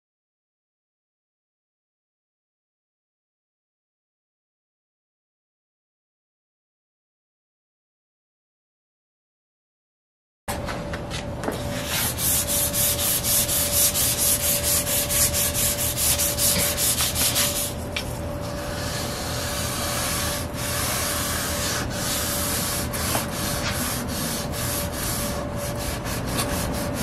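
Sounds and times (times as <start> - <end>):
sandpaper rubbing on wood: 11.6 - 17.9, 18.5 - 27.0.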